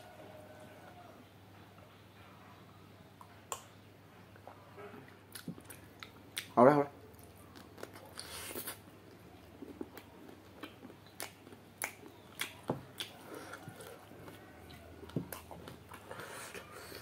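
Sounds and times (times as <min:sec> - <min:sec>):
close-up chewing with lip smacks: 0:04.4 - 0:17.0.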